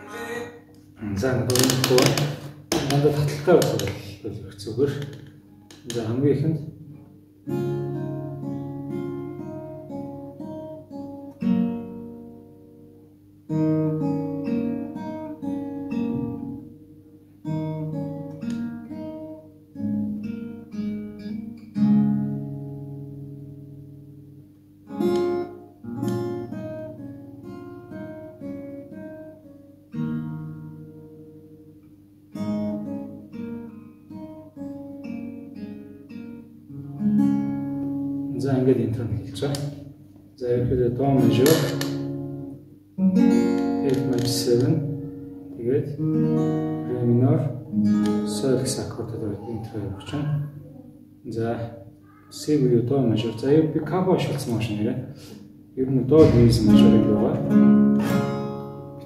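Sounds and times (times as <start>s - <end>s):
acoustic guitar plucked chords: 0.0s - 59.0s.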